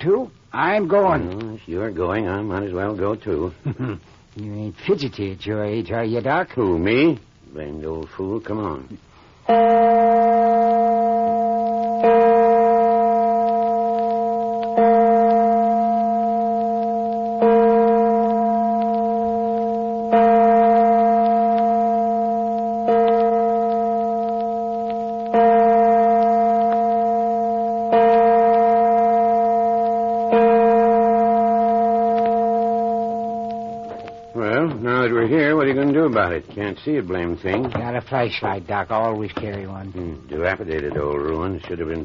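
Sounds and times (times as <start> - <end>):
church bell tolling: 9.5 - 36.3.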